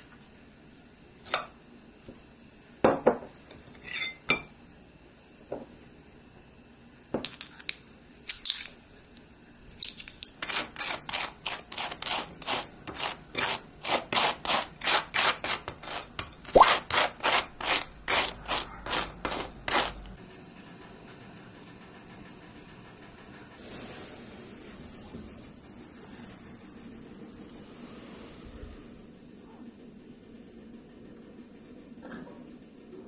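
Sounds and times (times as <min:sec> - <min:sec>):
knife scraping butter on toast: 0:10.4 - 0:20.0.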